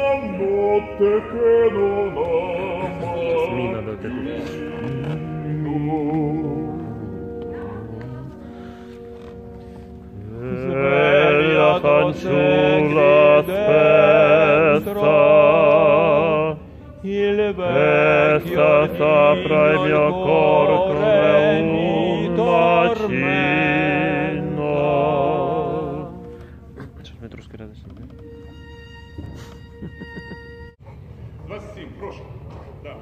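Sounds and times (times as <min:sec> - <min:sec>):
men singing operatically: 0:00.0 - 0:07.2, 0:10.3 - 0:26.2.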